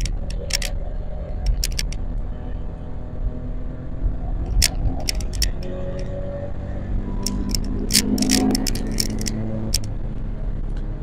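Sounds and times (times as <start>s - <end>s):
microphone mount rattling clicks: 0.0s - 0.8s, 1.4s - 2.0s, 4.5s - 6.1s, 7.2s - 9.9s
car engine and road rumble: 0.0s - 11.0s.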